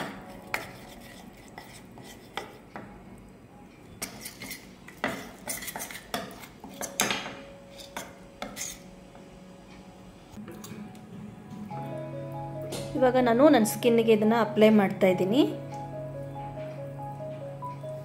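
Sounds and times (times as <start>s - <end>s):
spoon stirring in metal bowl: 0.0s - 2.8s, 3.9s - 8.8s.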